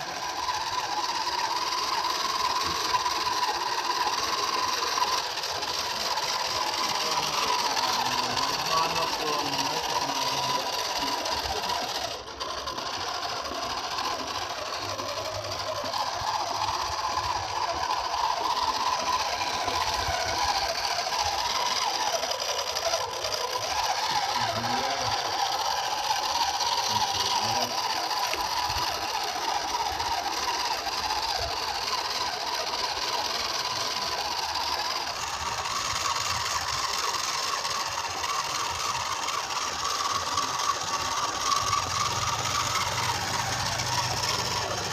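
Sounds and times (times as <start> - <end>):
small electric motor whirring: 0.0 - 44.9.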